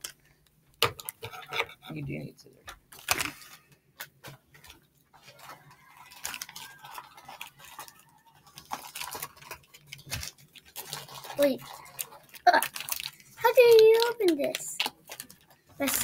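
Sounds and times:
plastic packet crinkling: 2.9s - 3.7s, 4.5s - 16.0s.

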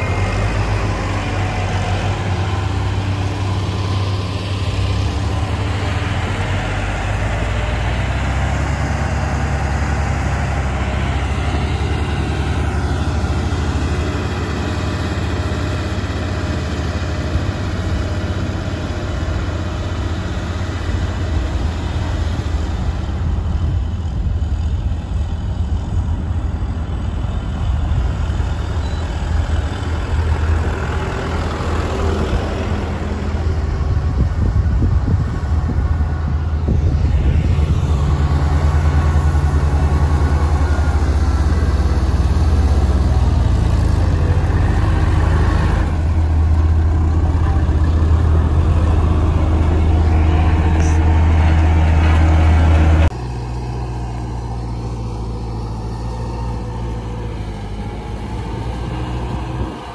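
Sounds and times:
motor grader diesel engine: 0.0s - 59.9s
tractor engine approaching: 0.0s - 59.9s.

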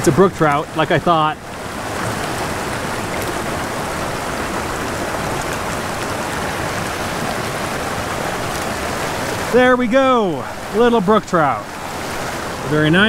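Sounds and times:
creek running over rocks: 0.0s - 13.0s.

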